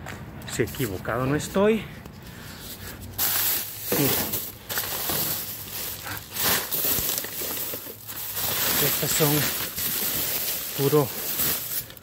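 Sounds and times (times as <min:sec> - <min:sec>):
plastic bags crinkling: 0:02.7 - 0:12.0.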